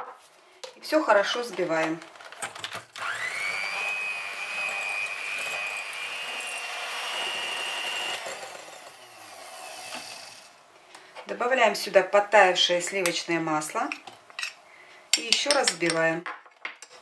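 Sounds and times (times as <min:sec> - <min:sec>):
electric hand mixer whining: 0:03.0 - 0:10.5.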